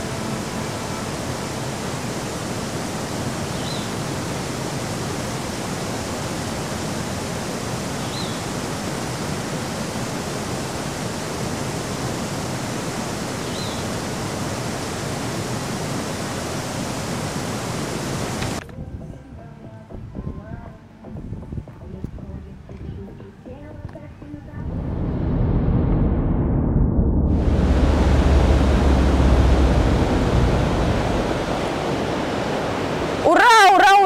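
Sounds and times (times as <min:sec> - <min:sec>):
waterfall rushing: 0:00.0 - 0:18.6, 0:27.3 - 0:34.0.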